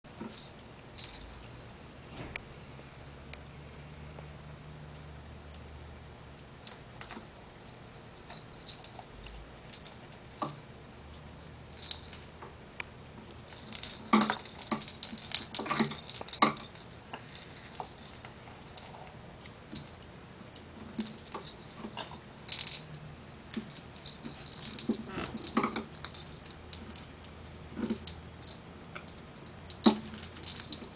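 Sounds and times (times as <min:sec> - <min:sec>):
plastic ball toy jingling and rattling: 0:00.3 - 0:01.4, 0:06.6 - 0:07.3, 0:08.1 - 0:10.6, 0:11.8 - 0:12.4, 0:13.5 - 0:20.0, 0:20.9 - 0:30.9.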